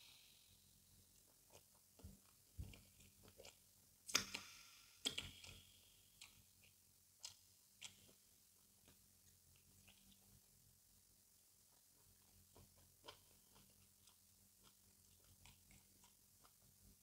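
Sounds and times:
wet mouth eating sounds: 1.2 - 10.4, 11.7 - 17.0.

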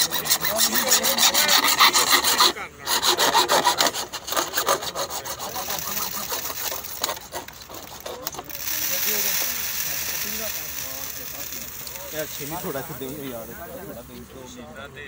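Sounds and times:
hand saw cutting plastic pipe: 0.0 - 14.3.

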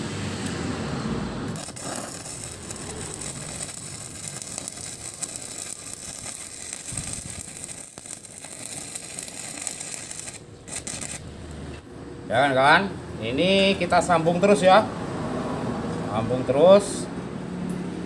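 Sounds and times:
crackling welding arc: 1.5 - 11.3.

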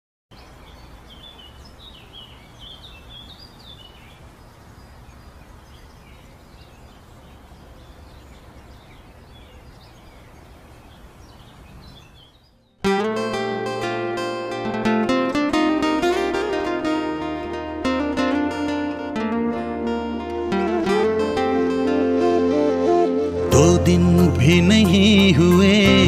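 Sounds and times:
small birds chirping: 0.3 - 12.9.

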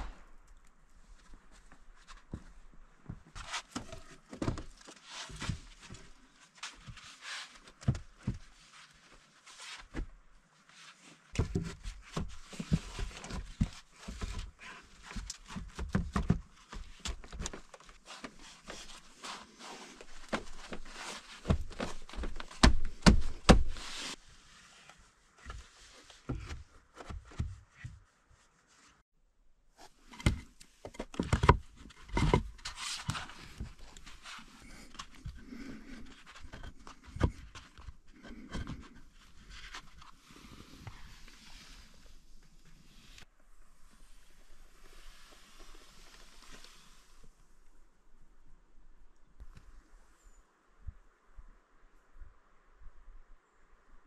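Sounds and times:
knocks and thuds of wood and tools: 21.4 - 23.8.

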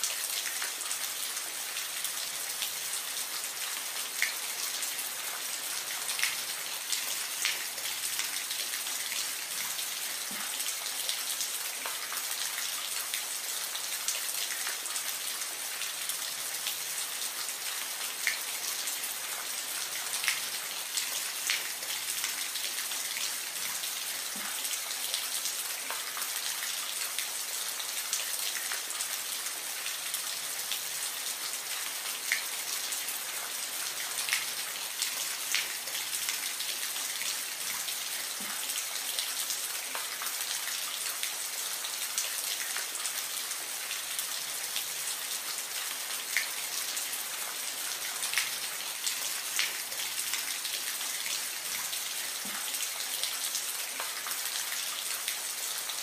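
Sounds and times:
steady soft rain: 0.0 - 56.0.

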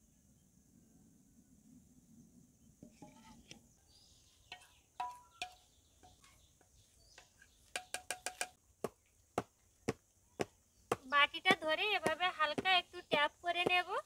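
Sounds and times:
metal bowl and tin clinking: 4.5 - 6.3.

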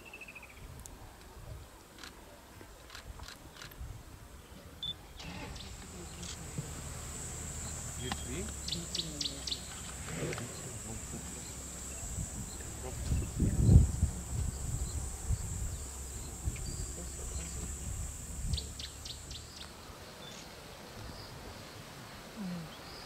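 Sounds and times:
low thumps and rustling: 5.2 - 18.8
high insect drone: 5.2 - 20.4
bird chirps: 7.4 - 13.8, 14.5 - 20.4.

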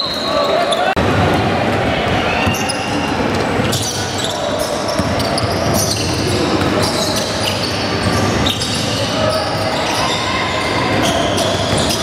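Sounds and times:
indistinct crowd voices: 0.0 - 12.0
basketball bouncing on court: 4.6 - 9.0.

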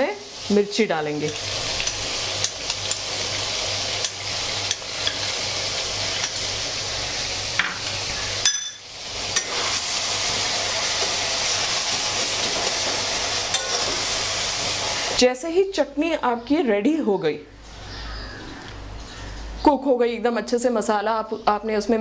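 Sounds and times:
tomatoes sizzling in oil: 0.0 - 16.1.

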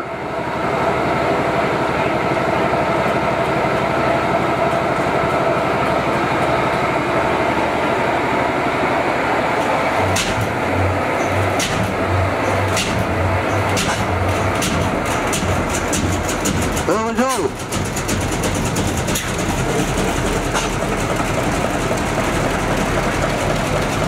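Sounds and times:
engine firing with sharp cracks: 9.6 - 24.0.

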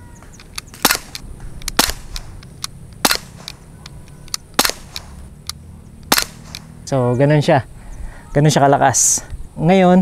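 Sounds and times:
pistol shots cracking: 0.4 - 5.2, 6.0 - 6.8.

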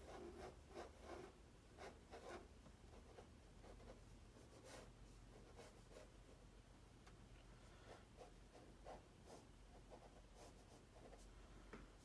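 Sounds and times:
ballpoint pen scratching on paper: 0.0 - 6.1.

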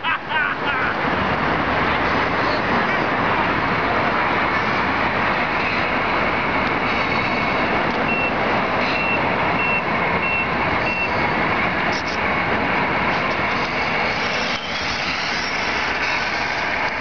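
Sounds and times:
steady rushing noise: 0.0 - 17.0
reversing beeper: 8.1 - 11.2.

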